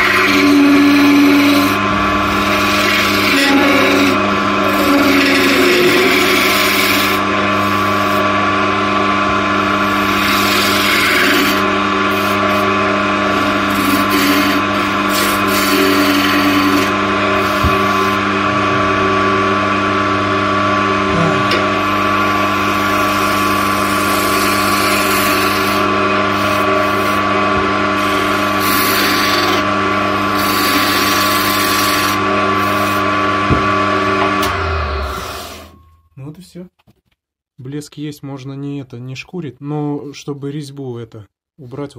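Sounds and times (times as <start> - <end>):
gouge scraping wood: 0.0 - 7.8, 10.0 - 12.6, 13.3 - 18.2, 21.9 - 27.2, 28.0 - 29.7, 30.3 - 33.0
wood lathe humming: 0.0 - 35.8.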